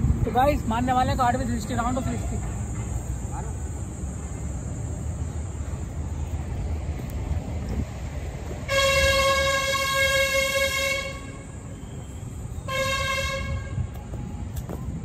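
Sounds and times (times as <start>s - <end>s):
horn blasts: 8.7s - 11.6s, 12.6s - 14.4s.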